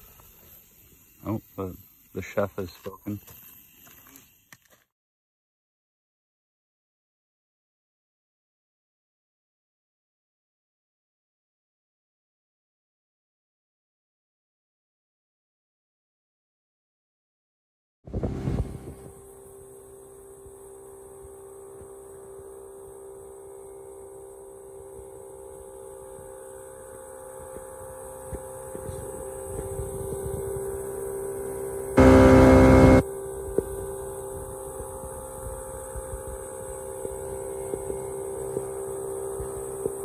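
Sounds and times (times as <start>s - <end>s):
outboard motor droning: 18.1s - 40.0s.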